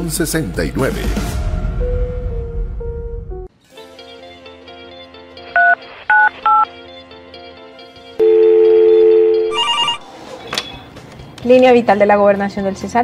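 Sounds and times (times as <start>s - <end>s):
soft background music: 0.0s - 13.0s
keypad beeps: 5.6s - 6.7s, 8.6s - 10.0s
two-note telephone tone: 8.2s - 10.0s.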